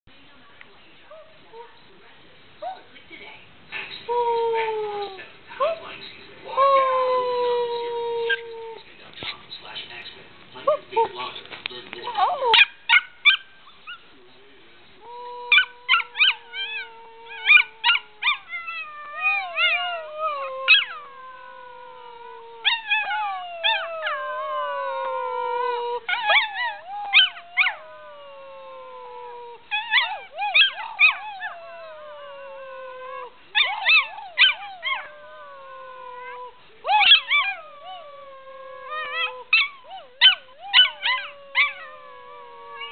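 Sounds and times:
puppy howling: 6.5 - 8.8, 15.0 - 42.9.

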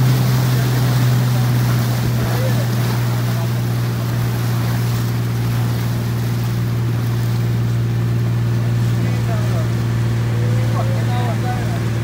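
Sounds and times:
boat engine humming: 0.0 - 12.0
sea noise: 0.0 - 12.0
wind: 0.0 - 12.0.

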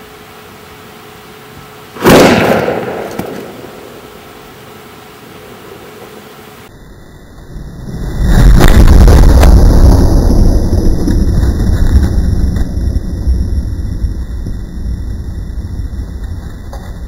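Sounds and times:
steady low hiss: 0.0 - 17.0
sudden loud bang: 2.0 - 3.8
rushing noise: 7.0 - 17.0.

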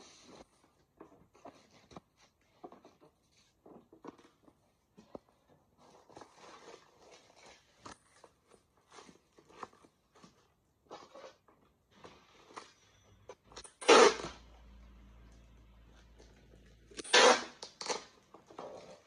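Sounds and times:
cardboard rustling: 0.0 - 13.0.

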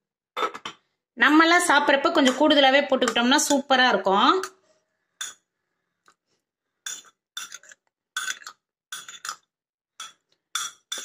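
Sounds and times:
spoon clinking against ceramic mug: 6.9 - 9.4.

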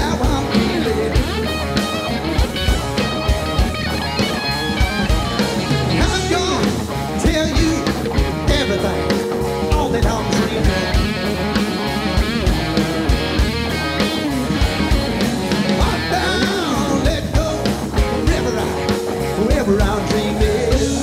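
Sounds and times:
man singing: 0.0 - 1.6, 5.9 - 11.5, 15.7 - 21.0
drum kit beat: 0.0 - 21.0
electric guitar: 0.0 - 21.0.

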